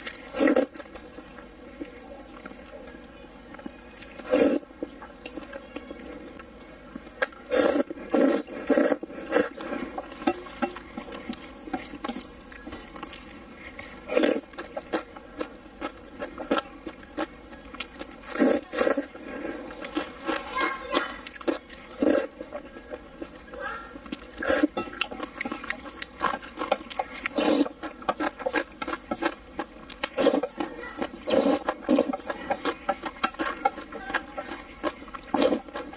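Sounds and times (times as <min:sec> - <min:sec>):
wet chewing: 0:00.0 - 0:35.9
person slurping noodles: 0:00.3 - 0:00.8, 0:04.2 - 0:04.7, 0:07.5 - 0:10.1, 0:14.0 - 0:14.5, 0:18.3 - 0:20.4, 0:22.0 - 0:22.3, 0:24.4 - 0:24.8, 0:27.2 - 0:29.4, 0:30.1 - 0:30.5, 0:31.2 - 0:33.8, 0:34.8 - 0:35.9.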